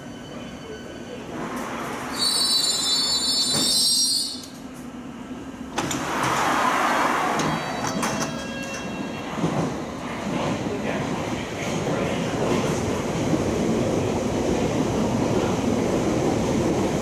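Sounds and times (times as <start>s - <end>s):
train wheels and brakes squealing: 0.0s - 4.6s, 6.4s - 10.0s.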